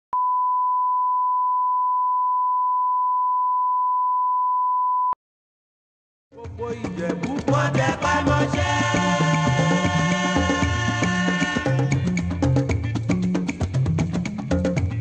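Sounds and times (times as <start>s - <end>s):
music: 6.3s - 15.0s.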